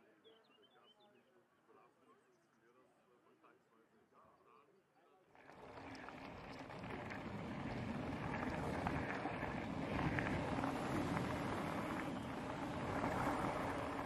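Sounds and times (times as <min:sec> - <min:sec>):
wind buffeting microphone: 0:05.6 - 0:14.0.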